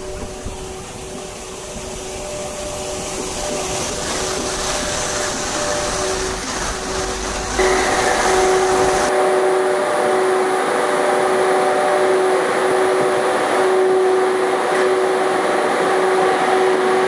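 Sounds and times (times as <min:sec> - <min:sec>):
locomotive cooling blowers whirring: 0:00.0 - 0:17.0
rushing hiss of moving train: 0:00.0 - 0:17.0
hum tones: 0:02.1 - 0:15.3.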